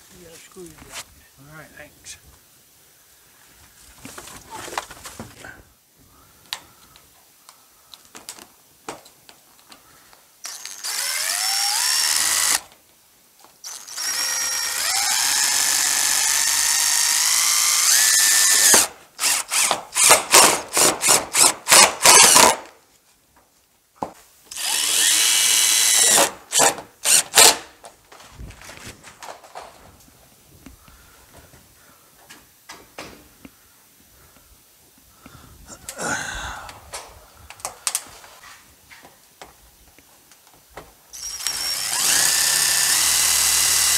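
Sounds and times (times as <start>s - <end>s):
cordless drill driving screws: 10.4s - 12.7s, 13.6s - 22.7s, 24.5s - 27.7s, 41.2s - 43.9s
drill trigger bursts: 10.4s - 12.7s, 13.7s - 22.7s, 24.5s - 27.7s, 41.2s - 43.9s.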